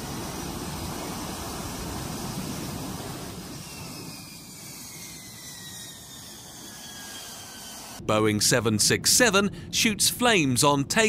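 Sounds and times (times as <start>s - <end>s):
high engine whines: 0.0s - 8.0s
jet engine roar: 0.0s - 11.0s.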